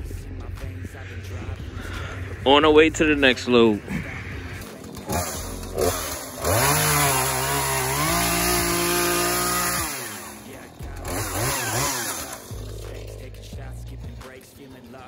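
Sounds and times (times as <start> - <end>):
chainsaw cutting branches: 4.2 - 13.6.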